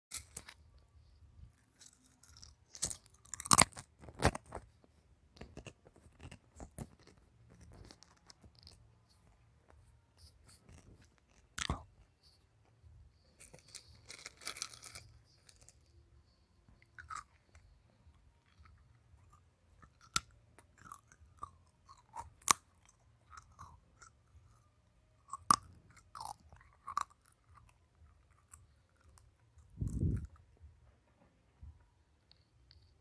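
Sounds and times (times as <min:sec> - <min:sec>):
chewing crunchy snack: 0:01.7 - 0:04.8, 0:05.4 - 0:09.2, 0:10.4 - 0:12.4, 0:13.4 - 0:15.9, 0:16.8 - 0:17.7, 0:18.4 - 0:30.4.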